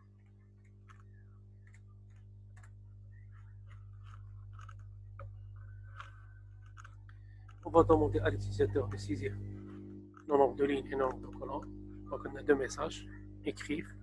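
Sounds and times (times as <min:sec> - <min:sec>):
low electrical hum: 0:00.0 - 0:14.0
computer keys typing: 0:00.6 - 0:07.6.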